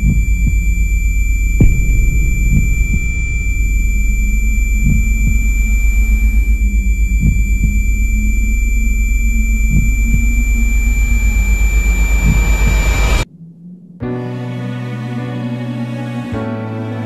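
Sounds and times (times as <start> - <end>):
high ringing tone: 0.0 - 13.3
low rumbling drone: 0.0 - 15.2.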